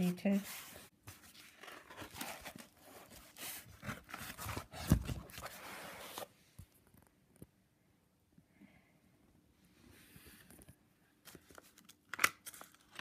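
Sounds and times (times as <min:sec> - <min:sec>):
paper pages rustling: 0:00.0 - 0:06.3, 0:10.5 - 0:13.0.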